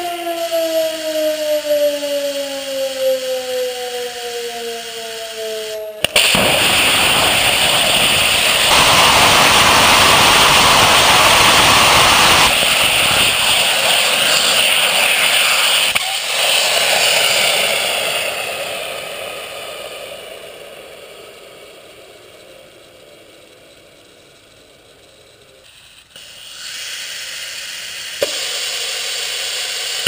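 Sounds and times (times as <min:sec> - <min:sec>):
rocket engine roaring: 0:00.0 - 0:30.0
rushing hiss: 0:00.0 - 0:30.0
rocket engine ignition pop: 0:06.0 - 0:14.4, 0:28.1 - 0:29.0.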